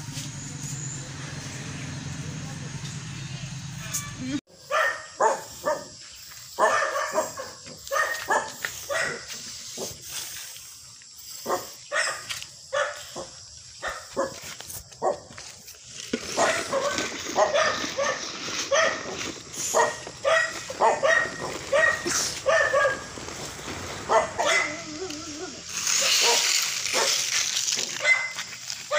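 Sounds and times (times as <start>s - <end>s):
dog barking: 4.7s - 6.0s, 6.6s - 10.0s, 11.4s - 14.4s, 16.4s - 23.1s, 24.1s - 24.9s, 26.0s - 27.2s, 28.0s - 28.9s.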